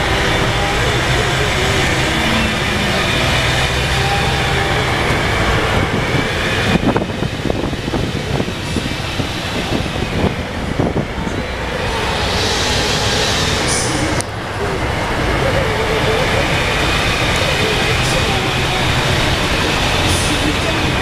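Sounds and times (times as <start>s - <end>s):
bus engine drone: 0.0s - 21.0s.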